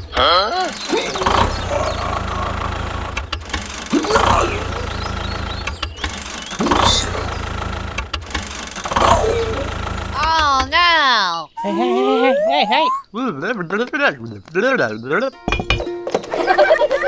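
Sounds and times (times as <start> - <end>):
small motor humming: 0.6 - 10.7.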